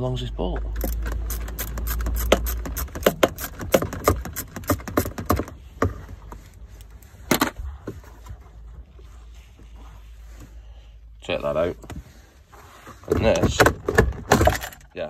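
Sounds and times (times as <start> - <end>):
socket ratchet clicking: 0.8 - 5.4.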